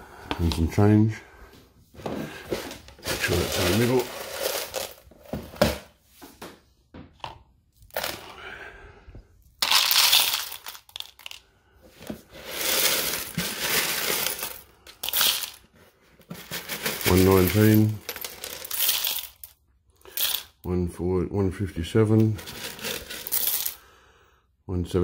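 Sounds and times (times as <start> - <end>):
small chips rattling into plastic bowl: 3.1 - 5.1, 9.6 - 11.4, 12.4 - 15.6, 16.3 - 20.5, 22.2 - 23.8.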